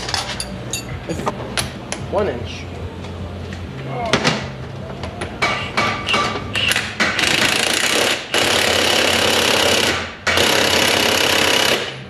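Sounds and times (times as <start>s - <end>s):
impact wrench hammering: 5.4s - 12.0s.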